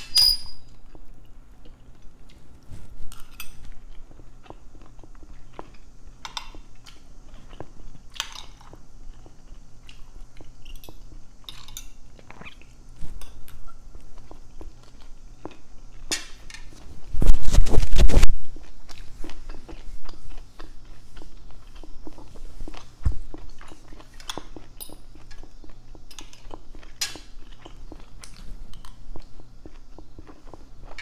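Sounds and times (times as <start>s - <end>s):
person chewing food: 0.7s - 16.9s, 17.5s - 31.0s.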